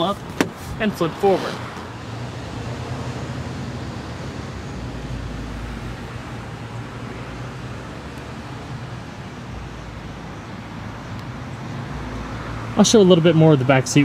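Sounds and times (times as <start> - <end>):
background traffic noise: 0.0 - 14.0.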